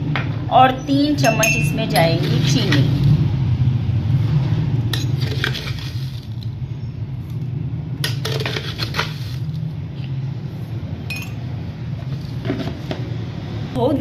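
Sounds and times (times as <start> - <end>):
steady low hum: 0.0 - 14.0
spoon clinking on ceramic mug: 1.2 - 2.8, 11.1 - 11.4.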